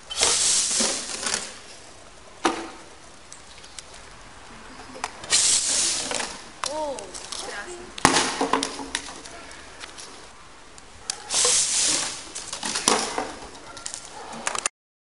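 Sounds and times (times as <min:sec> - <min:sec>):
bottle rocket whoosh: 0:00.0 - 0:01.6, 0:05.2 - 0:06.4, 0:11.3 - 0:13.4
bottles knocking on asphalt: 0:07.1 - 0:09.2.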